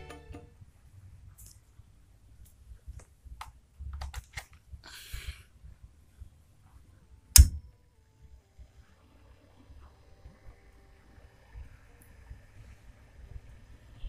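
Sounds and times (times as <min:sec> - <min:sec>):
handling clicks: 0:07.4 - 0:07.6
power switch click with thump: 0:07.4 - 0:07.6.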